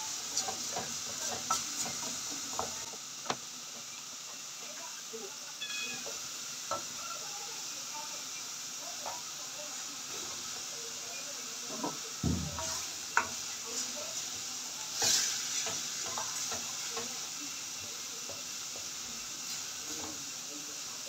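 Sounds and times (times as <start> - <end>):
meat sizzling in a pan: 0.0 - 21.0
wooden spoon scraping pan: 15.0 - 16.6.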